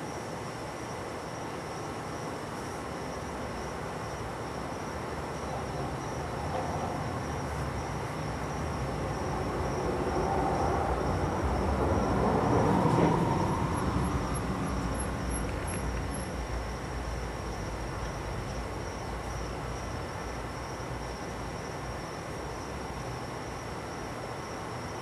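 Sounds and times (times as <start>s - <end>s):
passing vehicle rumble: 6.3s - 18.4s.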